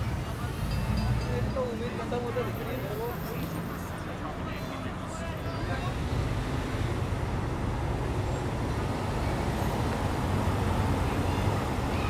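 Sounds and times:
street traffic noise: 0.0 - 12.0
vehicle engine rumbling nearby: 0.0 - 12.0.

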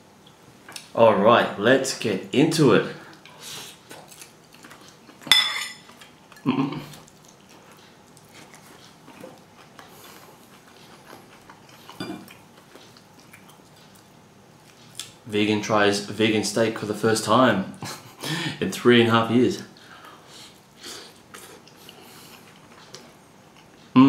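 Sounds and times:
fork clinking against bowl: 5.3 - 5.9.

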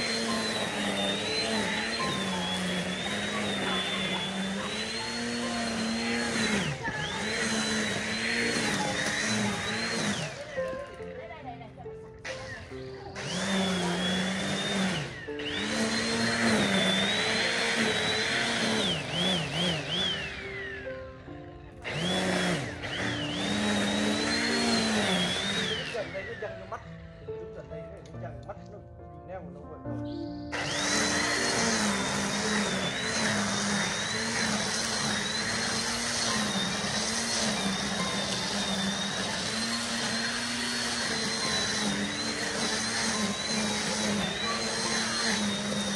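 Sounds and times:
power tool motor whining: 0.0 - 28.1, 30.0 - 45.9
string trimmer cutting weeds: 0.0 - 28.2, 30.0 - 45.9.

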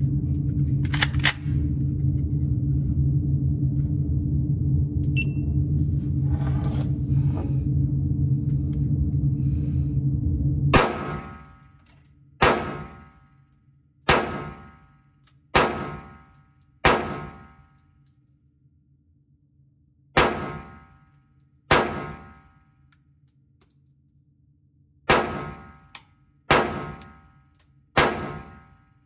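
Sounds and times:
steady low hum: 0.0 - 29.0
pistol shots with ringing echo: 10.8 - 11.6, 12.4 - 13.2, 14.1 - 14.9, 15.5 - 17.7, 20.2 - 21.0, 21.7 - 22.4, 25.1 - 25.9, 26.5 - 27.3, 28.0 - 28.9.

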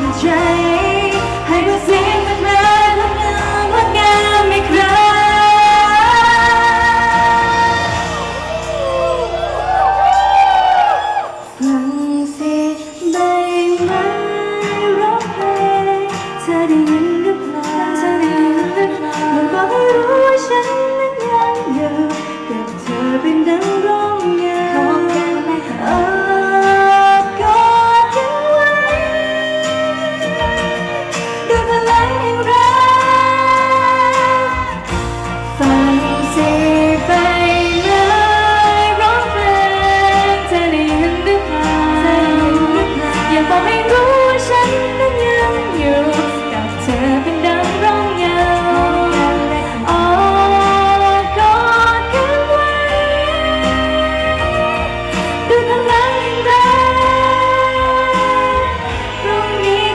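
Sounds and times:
pop song through sound system: 0.0 - 59.9.

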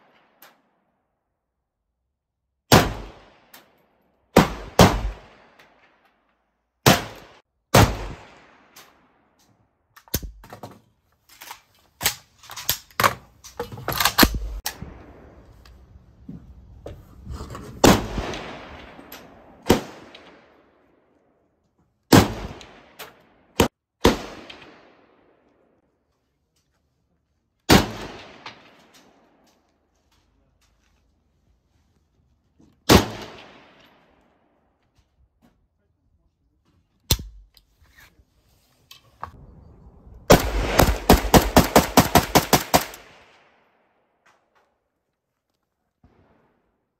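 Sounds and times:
rifle shots: 2.7 - 3.5, 4.4 - 5.6, 6.8 - 8.8, 23.6 - 25.2, 32.9 - 33.8, 40.3 - 43.6.

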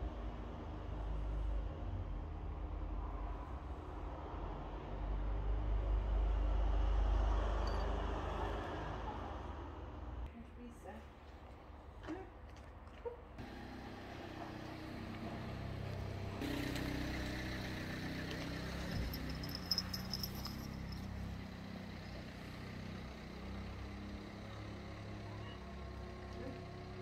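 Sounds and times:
vehicle engine humming: 13.4 - 27.0.

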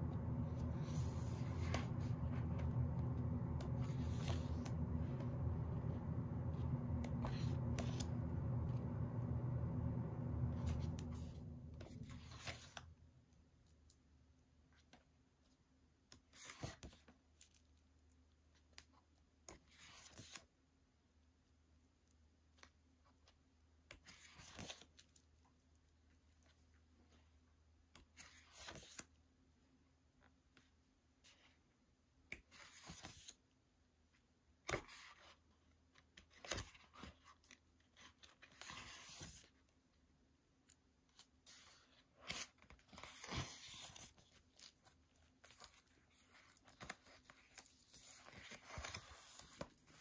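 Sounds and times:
book pages rustling: 0.1 - 9.6, 10.5 - 12.9, 34.7 - 39.6, 41.1 - 50.0
paper page swishes: 0.1 - 9.6, 10.4 - 12.9.

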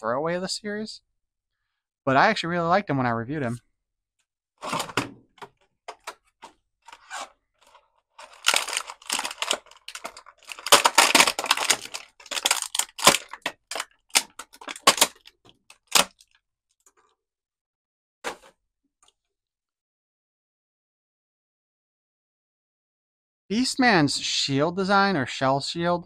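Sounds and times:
packaging tearing and crinkling: 6.9 - 16.4.

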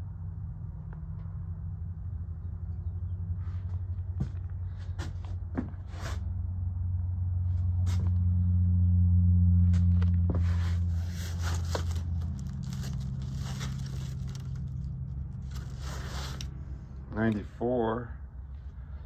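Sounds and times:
low steady rumble: 0.0 - 19.0
paper pages rustling: 9.8 - 16.5.

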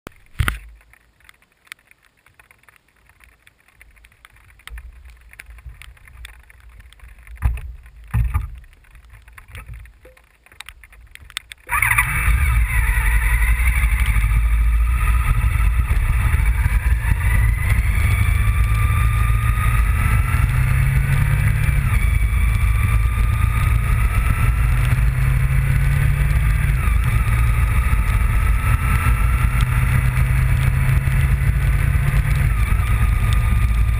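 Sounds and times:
motorcycle engine running: 11.6 - 33.9.

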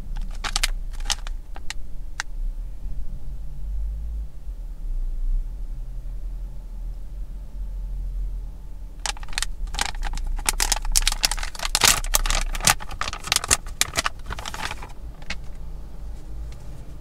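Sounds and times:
vending machine clicking and rattling: 0.0 - 1.8, 9.0 - 15.6
steady low hum: 0.0 - 17.0.

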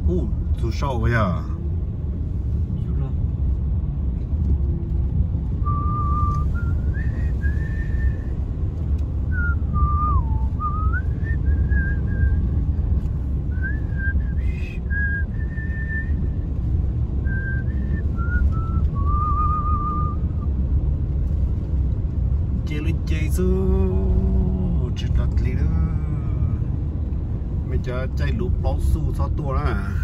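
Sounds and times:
car driving rumble: 0.0 - 30.0
person whistling a tune: 5.6 - 8.2, 9.3 - 12.4, 13.5 - 16.2, 17.3 - 20.3.

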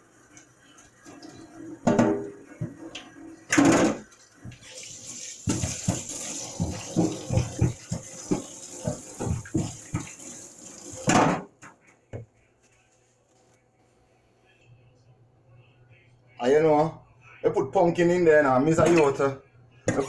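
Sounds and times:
hands rinsing and splashing: 4.1 - 11.1.

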